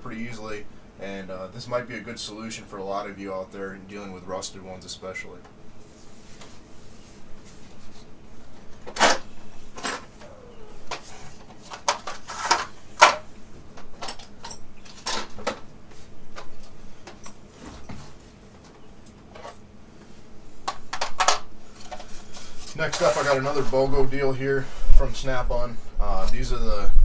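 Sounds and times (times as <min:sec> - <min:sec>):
plastic cases clicking and knocking: 0:20.7 - 0:22.0.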